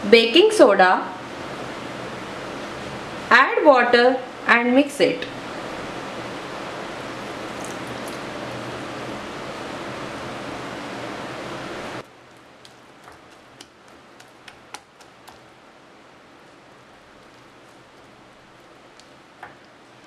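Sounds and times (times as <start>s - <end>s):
hand stirring batter: 7.1s - 8.5s, 12.0s - 20.0s
fingers tapping glass bowl: 12.6s - 15.5s.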